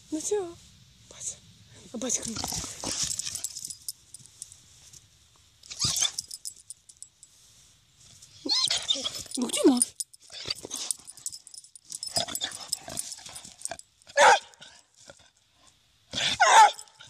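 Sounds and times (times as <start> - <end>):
dog barking: 14.2 - 14.6, 16.2 - 16.9.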